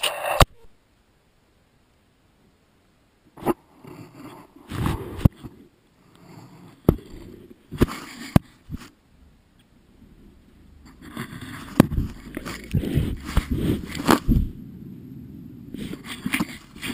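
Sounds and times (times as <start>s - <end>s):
knocks and scrapes on camera: 3.4s - 9.0s, 10.8s - 14.6s, 15.7s - 16.9s
fur rubbing over microphone: 11.0s - 14.6s, 15.7s - 16.9s.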